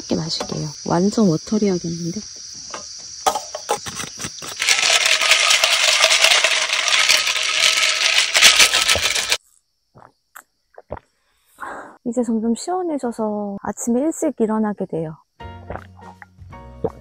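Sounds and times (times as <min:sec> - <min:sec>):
coffee pouring over ice: 0:04.6 - 0:09.4
ice clinking in a glass: 0:04.6 - 0:09.4.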